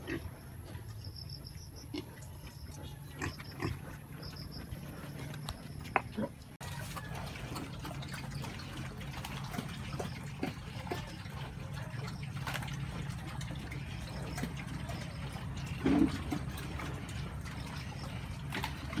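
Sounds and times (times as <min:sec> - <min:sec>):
pigs slurping feed: 0:00.0 - 0:19.0
pig grunt: 0:15.6 - 0:19.0.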